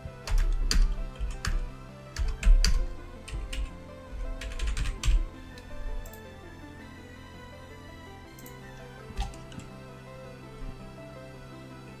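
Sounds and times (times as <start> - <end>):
background music: 0.0 - 12.0
keyboard typing: 0.2 - 6.2, 8.4 - 9.7.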